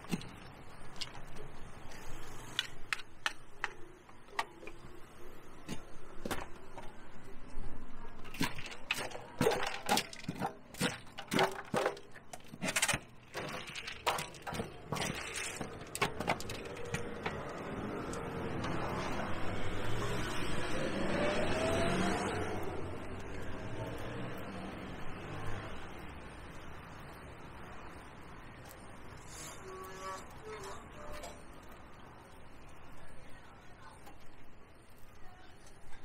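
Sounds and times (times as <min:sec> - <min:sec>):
hand tools knocking and clicking: 0:08.4 - 0:17.5.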